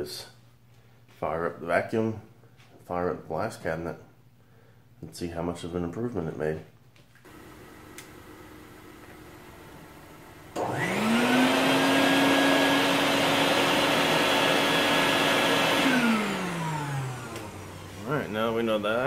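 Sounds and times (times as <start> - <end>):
vacuum motor whine: 7.3 - 19.0.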